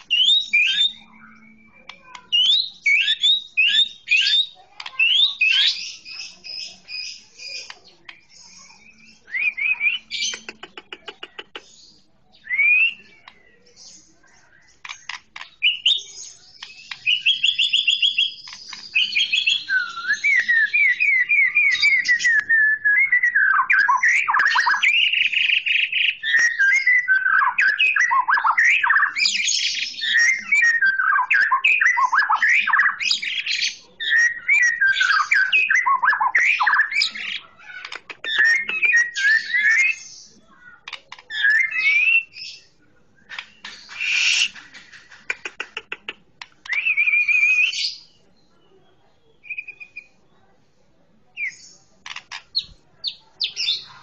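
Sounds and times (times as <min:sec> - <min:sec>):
bird singing whistled trills: 0:00.1 - 0:10.4, 0:12.3 - 0:37.3, 0:41.3 - 0:44.5, 0:46.6 - 0:48.2, 0:49.3 - 0:50.2.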